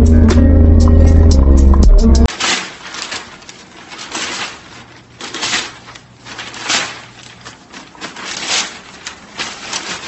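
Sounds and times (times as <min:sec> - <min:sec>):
newspaper rustling: 0:02.3 - 0:10.0.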